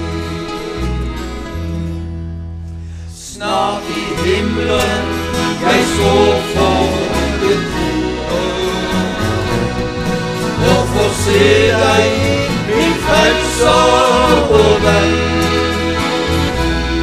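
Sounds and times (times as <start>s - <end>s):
acoustic guitars: 0.0s - 17.0s
men singing: 3.2s - 16.2s.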